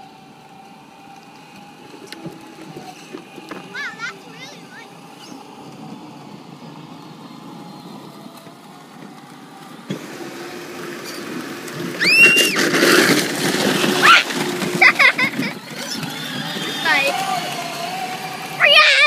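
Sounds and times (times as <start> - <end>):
ride-on toy vehicles whirring: 0.0 - 19.0
child squealing: 12.0 - 12.6, 13.9 - 15.0, 18.6 - 19.0.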